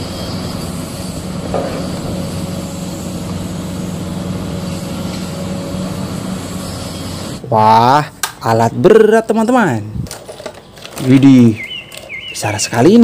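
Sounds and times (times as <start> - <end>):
excavator diesel engine running: 0.0 - 7.8.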